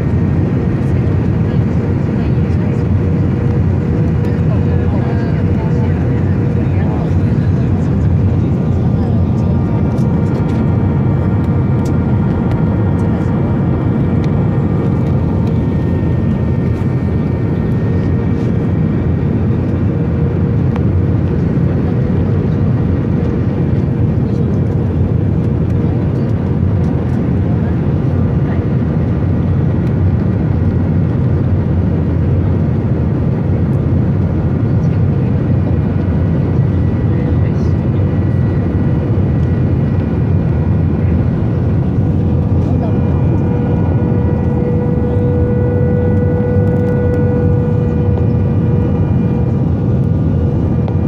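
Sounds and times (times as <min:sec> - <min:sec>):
jet engine and airflow roar: 0:00.0 - 0:51.0
faint whining tones: 0:42.6 - 0:50.2.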